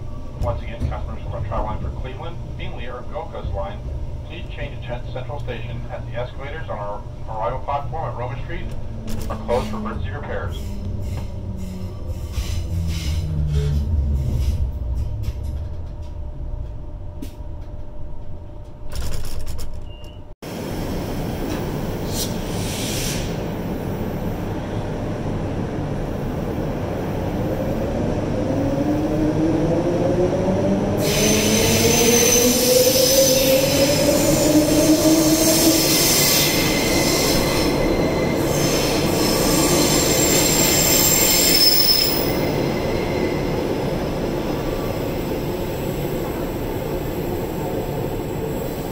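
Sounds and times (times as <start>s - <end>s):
train rumble: 0.0s - 48.9s
wheel squeal: 19.8s - 20.3s, 35.9s - 43.6s.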